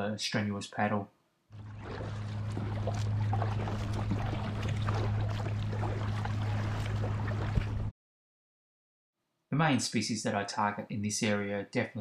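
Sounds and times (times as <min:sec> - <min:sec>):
low steady rumble: 0:01.5 - 0:07.9
paddle dipping and water splashing: 0:01.5 - 0:07.9.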